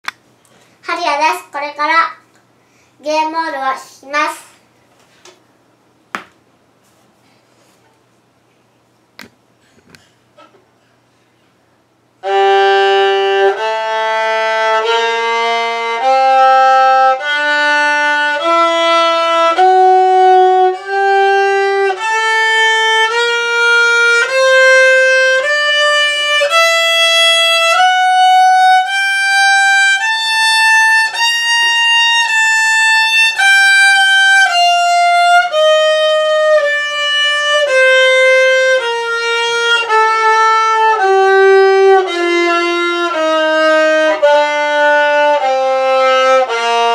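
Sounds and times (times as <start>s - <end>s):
bowed violin scale: 12.2s - 46.9s.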